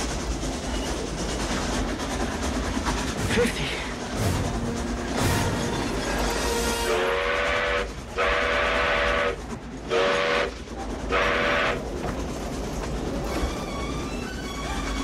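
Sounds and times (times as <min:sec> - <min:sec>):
moving train rumble: 0:00.0 - 0:15.0
steam locomotive whistle blasts: 0:06.4 - 0:10.5, 0:11.1 - 0:11.8.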